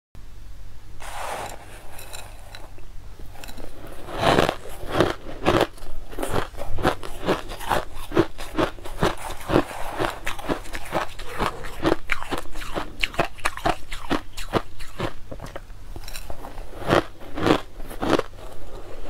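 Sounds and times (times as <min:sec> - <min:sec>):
plastic spoon scraping ice: 0:01.0 - 0:15.1
crushed ice crunched by teeth: 0:03.4 - 0:19.0.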